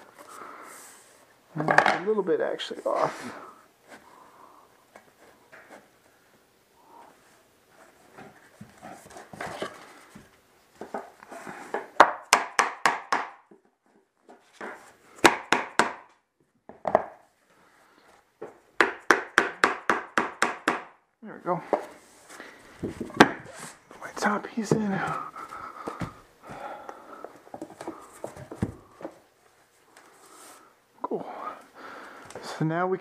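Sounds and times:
sharp wooden knocks: 11.8 - 13.6, 15.2 - 16.1, 18.8 - 21.0
scuffing and shuffling on floor: 21.6 - 30.7.

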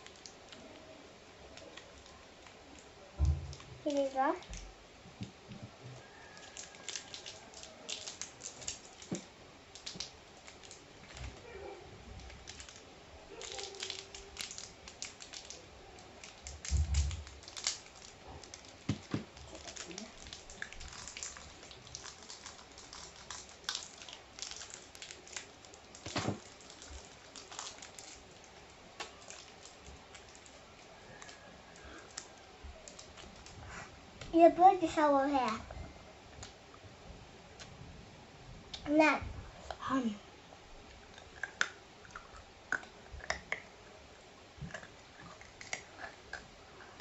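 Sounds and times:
chewing crunchy candy: 6.1 - 9.2, 13.4 - 33.6, 41.1 - 43.7, 44.6 - 47.0
snack packet crinkling: 6.2 - 11.4, 12.2 - 33.6, 44.7 - 46.4.

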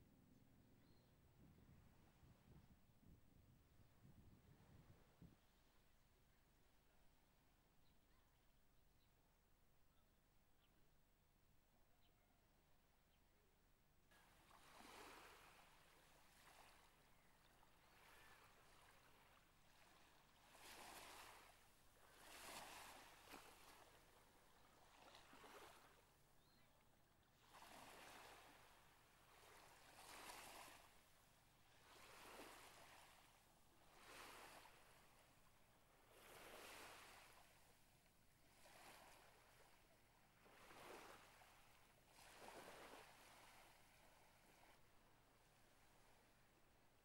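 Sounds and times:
small waves washing on sand: 14.2 - 26.1, 27.3 - 45.0.

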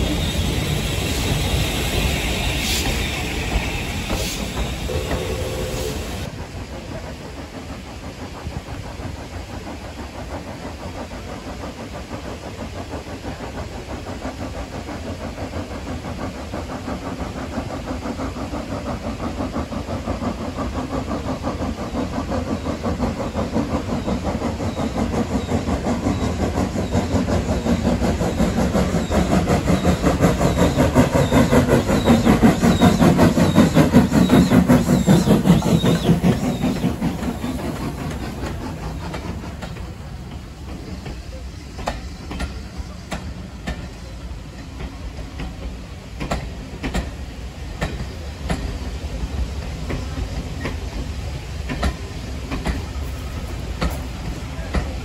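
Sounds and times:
steam locomotive chuffing: 0.0 - 55.0.

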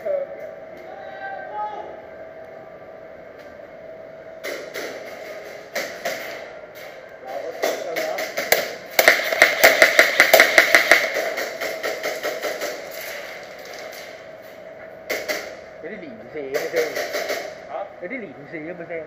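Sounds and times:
airsoft gun shots: 8.2 - 12.8, 16.6 - 17.6.

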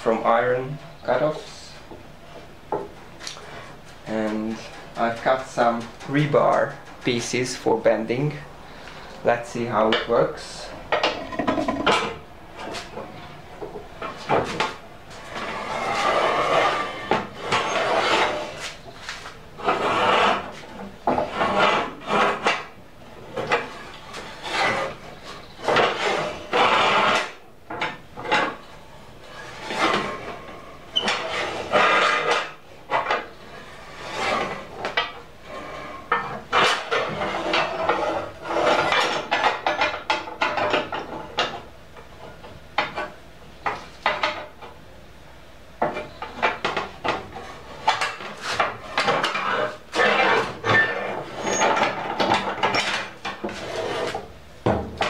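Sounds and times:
rebar scraping and clanking on steel: 47.4 - 54.2.

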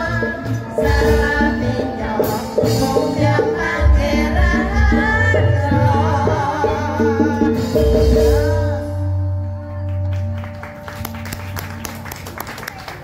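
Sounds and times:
woman singing: 0.0 - 9.8
gamelan music: 0.0 - 12.4.

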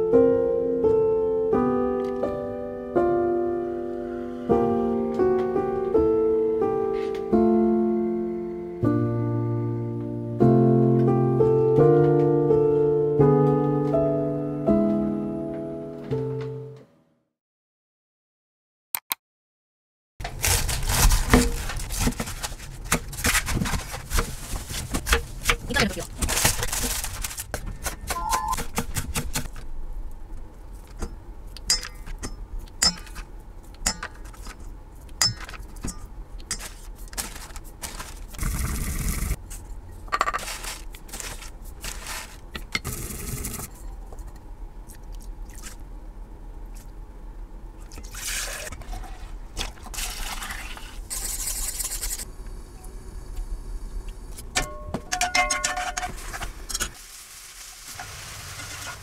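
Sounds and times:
plastic bag rustling: 20.2 - 28.1, 36.5 - 42.6
spoon clicks and scrapes: 33.8 - 38.0
garlic sizzling in oil: 56.9 - 59.0.

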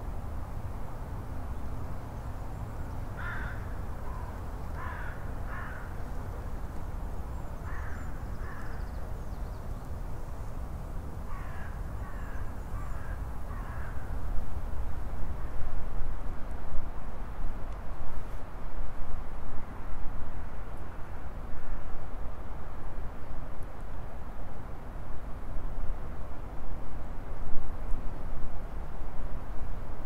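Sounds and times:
low rumble of wind: 0.0 - 30.0
crow cawing: 3.2 - 5.9, 7.7 - 8.7, 11.3 - 14.1.

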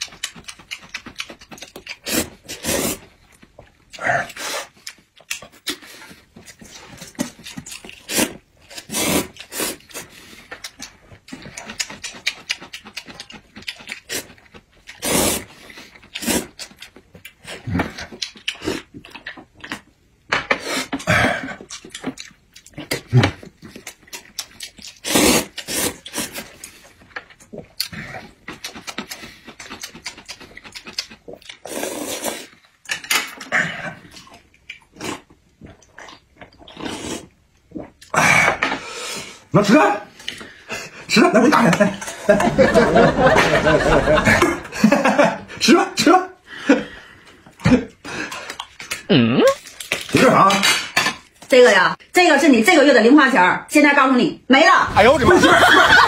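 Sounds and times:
chewing: 0.0 - 15.0, 15.6 - 20.0, 20.9 - 38.1
wet noodle slurping: 1.8 - 3.1, 8.0 - 10.1, 24.9 - 26.6, 29.6 - 32.6.

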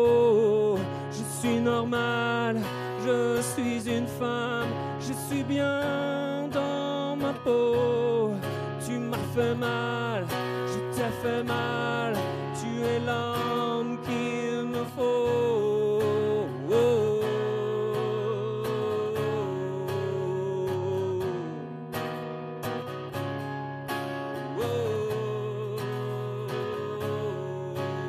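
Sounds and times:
acoustic guitar strumming: 0.0 - 28.0.

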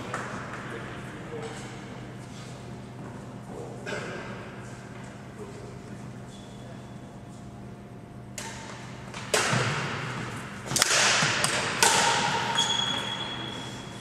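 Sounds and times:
racket hitting shuttlecock: 8.4 - 13.2.

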